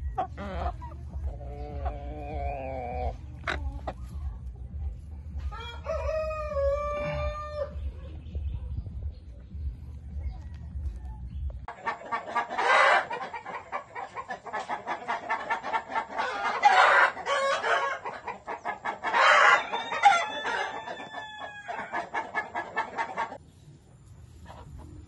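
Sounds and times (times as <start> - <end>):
chickens clucking rapidly: 0.0 - 25.0.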